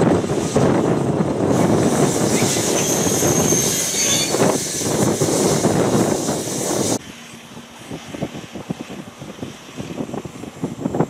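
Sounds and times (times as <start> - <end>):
freight wagons rumbling on track: 0.0 - 11.0
high wheel squeal: 1.6 - 7.0.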